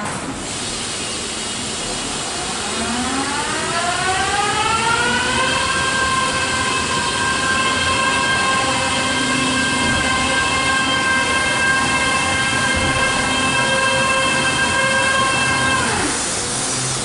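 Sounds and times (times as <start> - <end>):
hiss of water spray: 0.3 - 2.4, 16.0 - 17.0.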